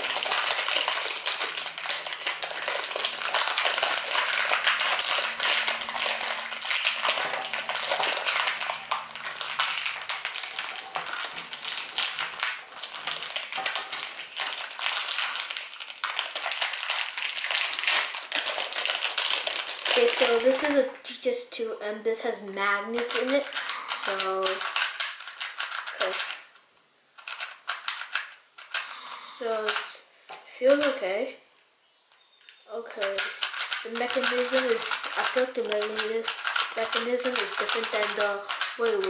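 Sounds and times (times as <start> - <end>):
plastic wrapping crumpling: 0.0 - 20.8, 23.0 - 26.6, 27.2 - 30.0, 32.5 - 39.0
puzzle cube turning clicks: 23.0 - 31.0, 32.4 - 39.0.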